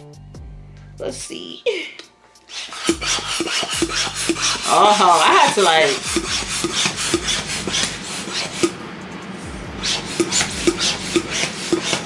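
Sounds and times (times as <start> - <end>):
hand balloon pump strokes: 2.5 - 8.8, 9.7 - 12.0.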